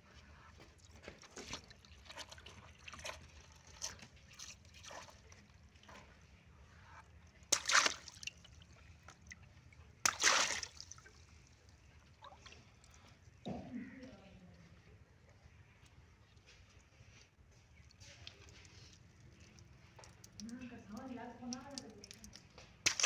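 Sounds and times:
water sloshing and dripping: 0.1 - 23.0
water balloon popping and splashing: 7.5 - 8.4, 10.0 - 11.1, 19.9 - 23.0.

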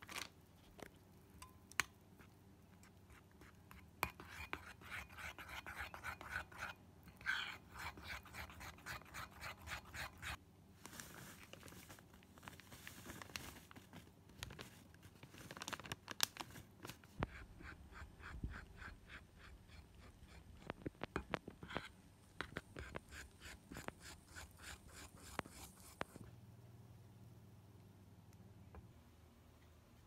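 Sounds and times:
metal spoon stirring batter in bowl: 1.4 - 10.4, 17.2 - 26.2.

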